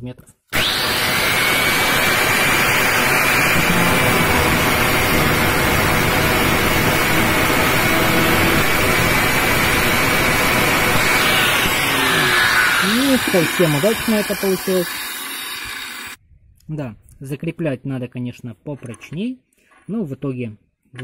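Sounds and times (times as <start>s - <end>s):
angle grinder cutting bolt: 0.5s - 16.2s.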